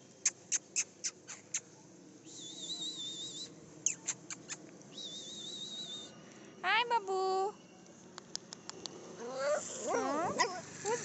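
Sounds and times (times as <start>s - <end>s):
puppies squeaking: 3.8s - 4.6s
puppies whining: 9.2s - 11.0s.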